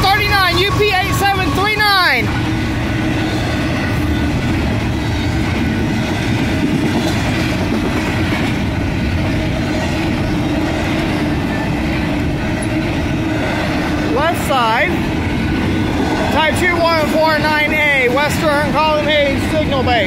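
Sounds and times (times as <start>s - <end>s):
freight train wheels rumbling on rails: 0.0s - 20.0s.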